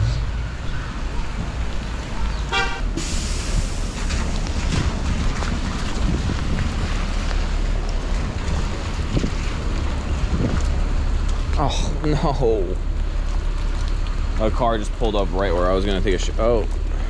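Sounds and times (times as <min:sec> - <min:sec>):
wind rumble on microphone: 0:00.0 - 0:12.0
wet street noise: 0:00.0 - 0:17.0.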